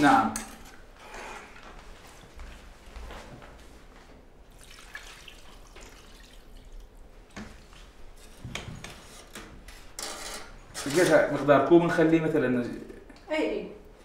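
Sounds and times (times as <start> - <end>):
liquid pouring into metal pot: 4.5 - 7.1.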